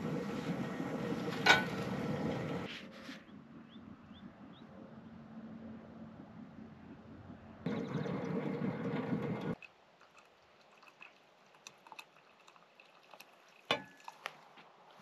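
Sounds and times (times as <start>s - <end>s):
coffee pouring into metal tumbler: 7.7s - 14.4s
faint drips: 7.7s - 15.0s.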